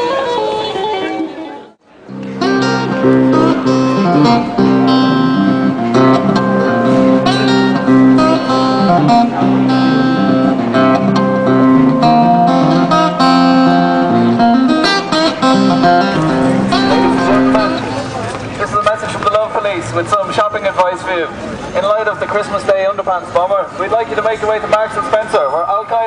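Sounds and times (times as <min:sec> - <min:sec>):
strummed guitar music: 0:02.0 - 0:18.4.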